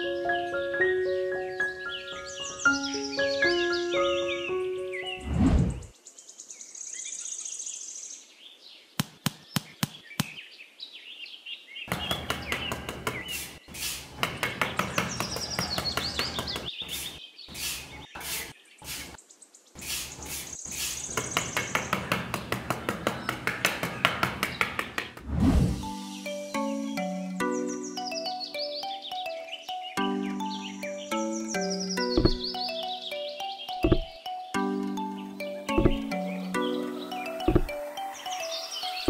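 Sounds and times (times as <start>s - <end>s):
birds chirping and twittering: 0.0s - 39.0s
sharp clicks and taps: 9.0s - 10.4s, 11.9s - 13.4s, 14.1s - 16.7s, 32.2s - 32.4s, 33.8s - 34.2s, 35.7s - 36.1s, 37.4s - 37.8s.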